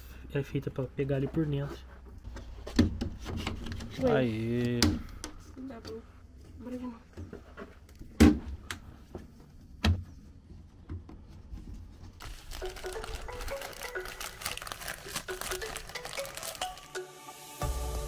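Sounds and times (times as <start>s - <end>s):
plastic trim crinkling and crackling: 12.2s - 16.9s.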